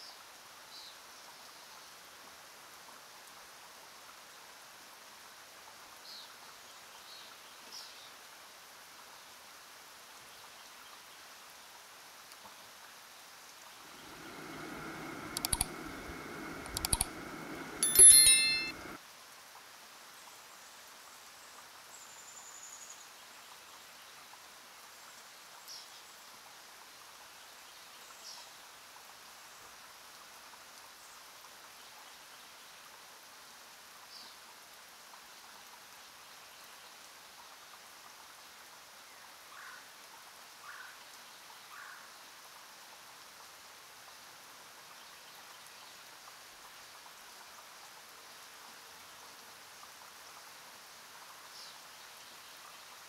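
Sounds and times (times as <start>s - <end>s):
faint hiss: 0.0s - 53.0s
low hum rising: 13.8s - 17.8s
sharp clicks: 13.9s - 19.0s
bright bell-like ding: 17.8s - 19.0s.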